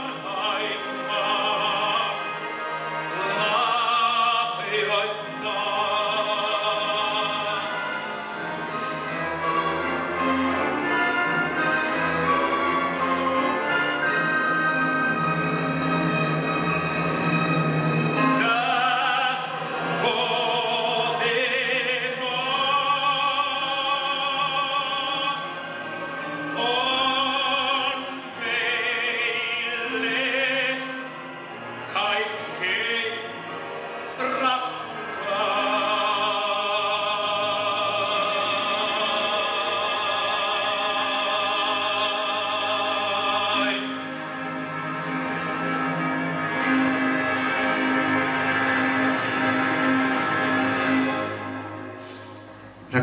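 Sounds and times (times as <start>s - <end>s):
man singing operatically: 0.0s - 8.4s, 18.2s - 25.8s, 26.5s - 44.5s.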